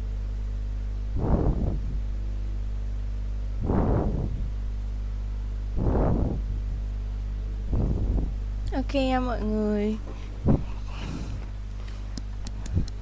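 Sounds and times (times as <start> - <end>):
low electrical hum: 0.0 - 13.0
soft noisy puffs: 1.1 - 2.1, 3.6 - 4.6, 5.7 - 6.9, 7.6 - 8.4, 10.0 - 13.0.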